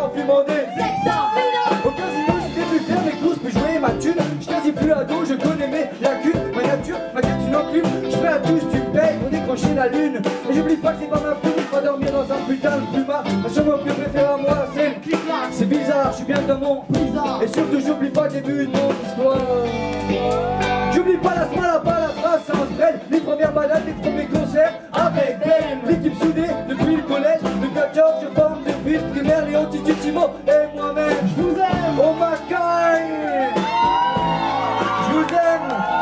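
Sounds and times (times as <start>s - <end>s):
person singing: 0.0s - 35.5s
live band playing: 0.0s - 36.0s.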